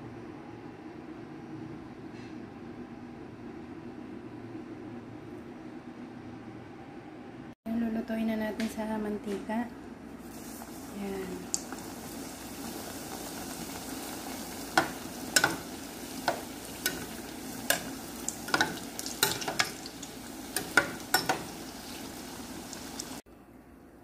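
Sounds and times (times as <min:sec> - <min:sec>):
dough sizzling in oil: 0:10.2 - 0:23.3
metal spoon clinking against pot: 0:14.8 - 0:15.7, 0:18.5 - 0:19.9, 0:20.5 - 0:21.6.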